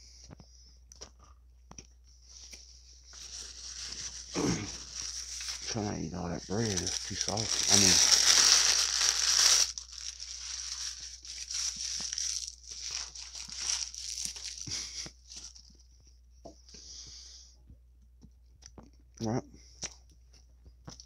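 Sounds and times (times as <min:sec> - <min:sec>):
paper wrapper crumpling: 0:03.1 - 0:15.7.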